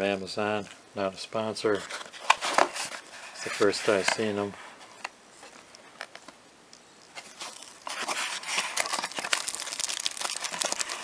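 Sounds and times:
plastic packaging crinkling: 0:05.4 - 0:11.0.

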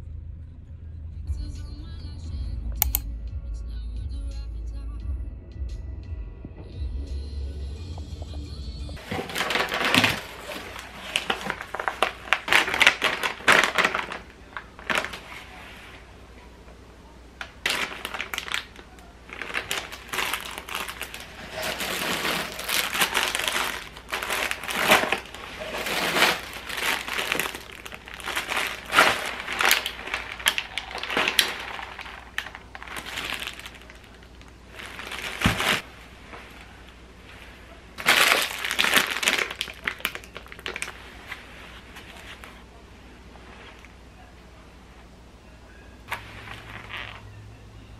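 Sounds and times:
plastic bags crinkling: 0:09.0 - 0:16.2, 0:17.4 - 0:44.0, 0:46.1 - 0:47.3.

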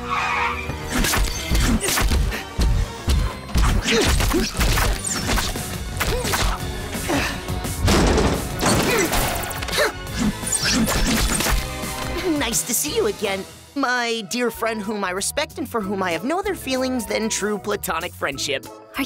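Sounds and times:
dramatic background music: 0:00.0 - 0:17.7
crashes and heavy impacts: 0:07.8 - 0:09.6.

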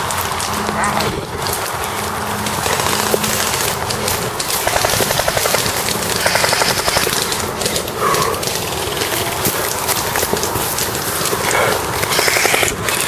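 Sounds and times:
rustling and footfalls on leaves: 0:00.0 - 0:13.0
airsoft gunfire bursts: 0:04.6 - 0:07.2, 0:12.0 - 0:13.0.

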